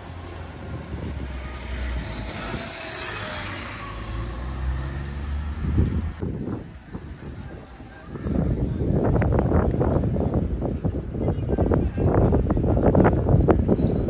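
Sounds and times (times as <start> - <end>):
vehicle driving past on wet street: 3.8 - 6.2.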